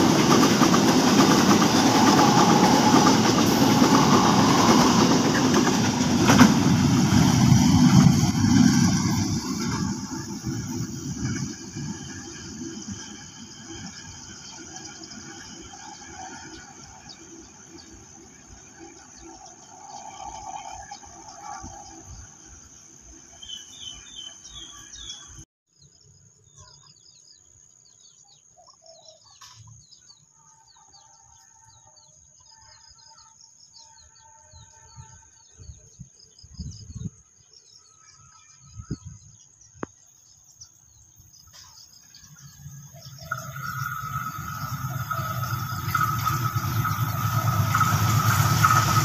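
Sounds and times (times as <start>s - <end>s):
distant train rumble: 0.0s - 25.4s, 41.1s - 49.0s
insect drone: 0.0s - 28.4s, 29.8s - 49.0s.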